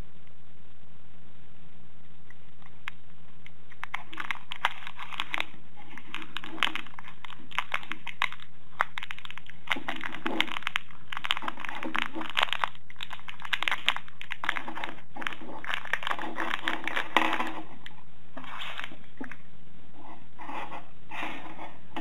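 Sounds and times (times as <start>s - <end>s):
low hum: 0.0s - 22.0s
plastic bag crinkling: 3.7s - 19.4s.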